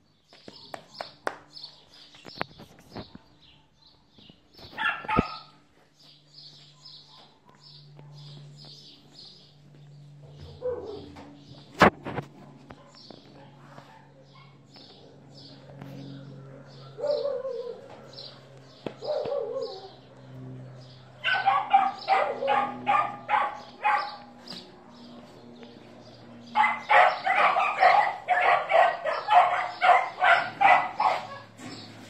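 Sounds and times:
dog yelping: 0:04.8 - 0:05.5, 0:10.6 - 0:11.2, 0:16.8 - 0:17.9, 0:19.0 - 0:19.9, 0:21.2 - 0:24.2, 0:26.6 - 0:31.6
dog barking: 0:04.8 - 0:05.6, 0:10.5 - 0:11.2, 0:12.8 - 0:14.7, 0:16.8 - 0:18.2, 0:19.0 - 0:19.9, 0:21.1 - 0:24.2, 0:26.6 - 0:31.5.

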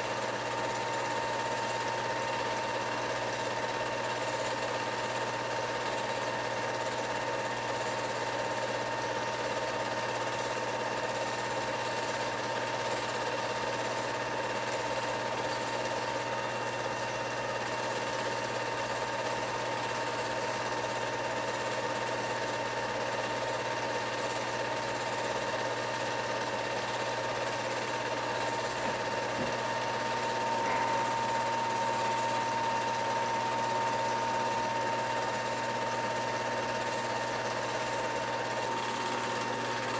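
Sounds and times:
movie projector whirring and clattering: 0:00.0 - 0:39.9
thin steady tone: 0:29.4 - 0:36.2.

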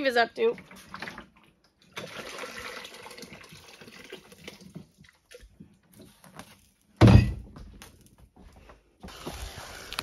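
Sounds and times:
water pouring into a steel pot: 0:00.6 - 0:05.6.

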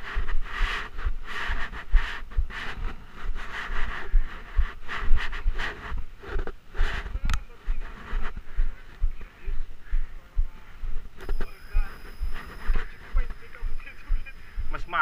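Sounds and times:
person breathing heavily: 0:00.0 - 0:06.0, 0:08.1 - 0:11.1, 0:11.8 - 0:14.8
clothing rubbing: 0:00.0 - 0:09.6.

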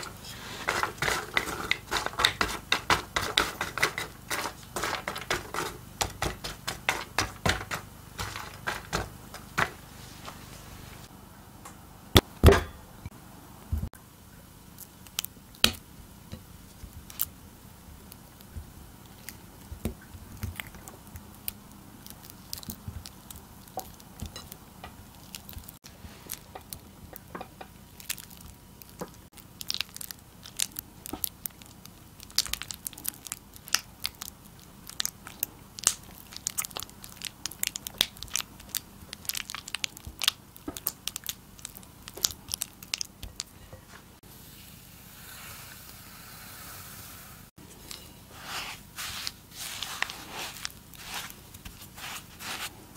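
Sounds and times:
spatula squelching butter: 0:00.0 - 0:09.9, 0:19.1 - 0:43.4, 0:47.9 - 0:52.8.

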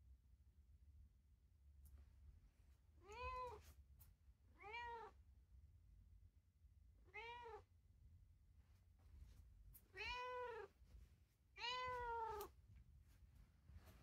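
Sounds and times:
cat meowing: 0:04.6 - 0:05.2, 0:07.1 - 0:07.7, 0:09.9 - 0:10.7, 0:11.6 - 0:12.5.

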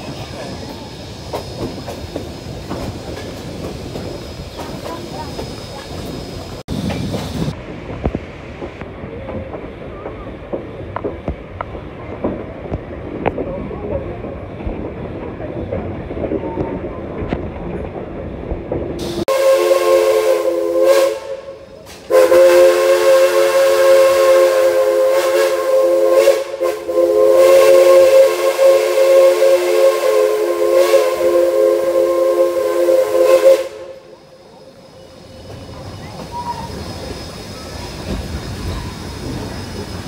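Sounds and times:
moving train rumble: 0:00.0 - 0:40.0
steam locomotive whistle: 0:19.0 - 0:34.4.

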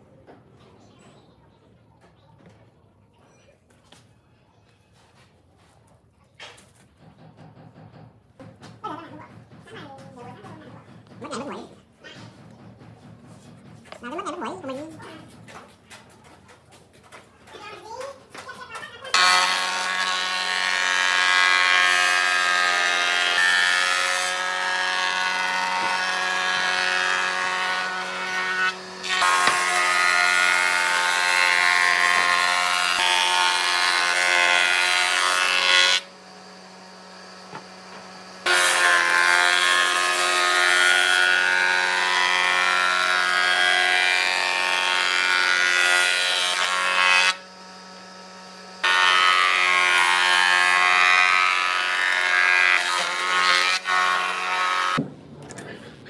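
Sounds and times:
power tool cutting wood: 0:19.1 - 0:55.0.

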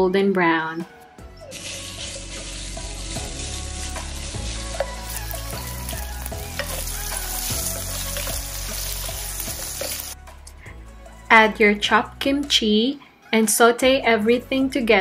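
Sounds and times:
bacon sizzling with pops: 0:01.6 - 0:10.2
wooden spatula stirring in pan: 0:03.1 - 0:10.2.

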